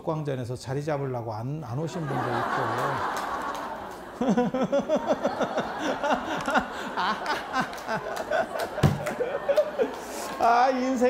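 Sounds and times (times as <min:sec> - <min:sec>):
audience laughing: 0:01.9 - 0:11.0
man laughing into a microphone: 0:02.0 - 0:03.5, 0:04.1 - 0:10.5.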